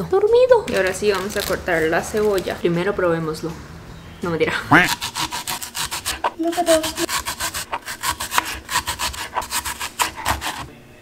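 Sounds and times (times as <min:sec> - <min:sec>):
knife slicing onion on board: 0:04.8 - 0:10.7.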